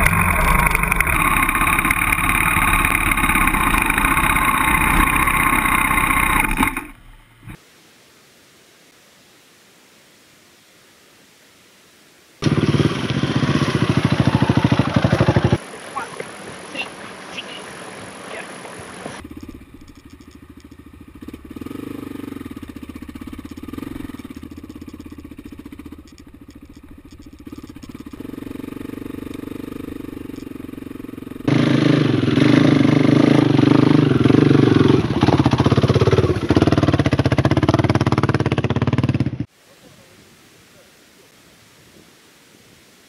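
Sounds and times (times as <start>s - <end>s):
loud close dirt bike engine: 0.0s - 7.0s, 12.4s - 15.6s, 19.2s - 39.5s
distant motorcycle engine: 0.0s - 7.6s, 12.4s - 16.1s, 19.0s - 39.5s.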